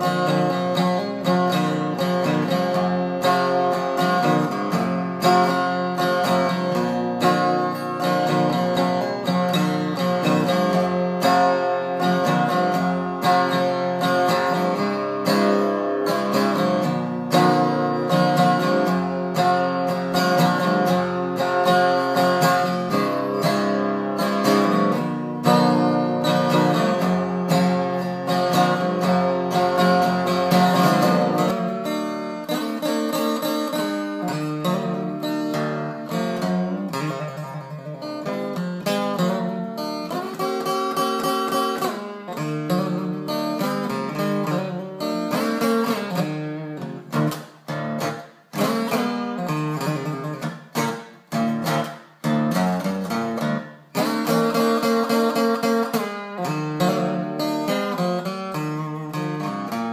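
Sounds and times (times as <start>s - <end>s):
acoustic guitar playing: 0.0s - 59.9s.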